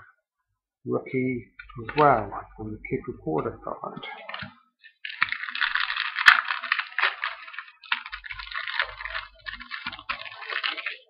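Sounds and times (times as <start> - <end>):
card pack wrapper crinkling: 4.1 - 11.0.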